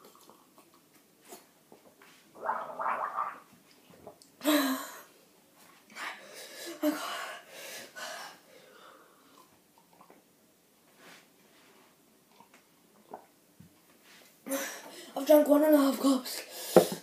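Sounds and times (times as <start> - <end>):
person gargling water: 2.4 - 3.5.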